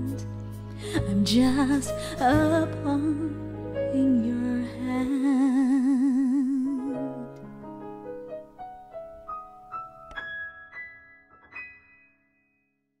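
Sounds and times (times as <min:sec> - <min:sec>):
piano single notes: 0:06.7 - 0:12.6.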